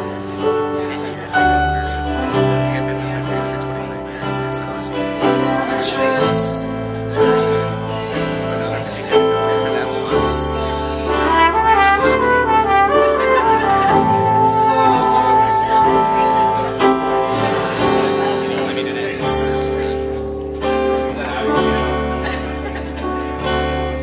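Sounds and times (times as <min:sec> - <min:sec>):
live band playing: 0:00.0 - 0:24.0
flugelhorn playing: 0:11.1 - 0:17.7.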